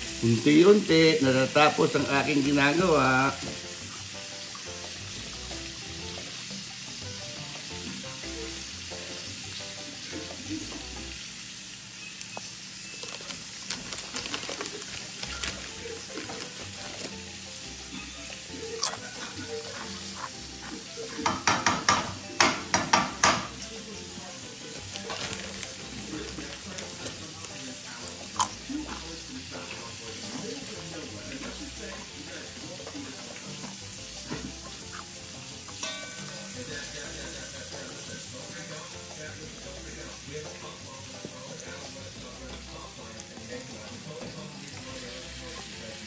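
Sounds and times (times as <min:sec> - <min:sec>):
fish sizzling in a pan: 0:00.0 - 0:46.0
utensil clattering against pan: 0:21.2 - 0:23.6.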